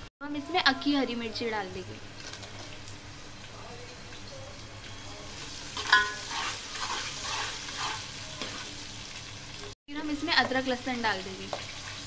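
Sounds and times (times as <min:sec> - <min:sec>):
onions sizzling in hot oil: 0:01.8 - 0:12.0
metal spoon clanking on pot: 0:05.8 - 0:07.0
spoon scraping while stirring: 0:05.8 - 0:08.6.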